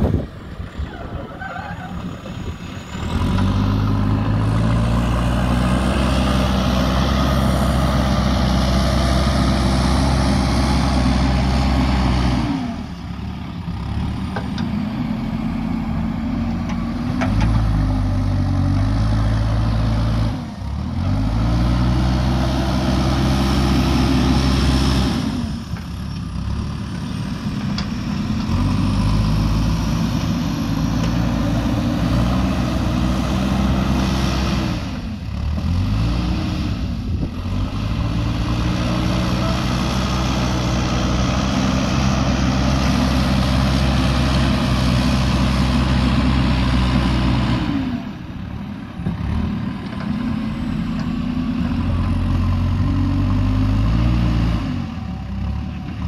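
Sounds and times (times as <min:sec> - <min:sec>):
diesel engine running hard: 0:00.0 - 0:56.0.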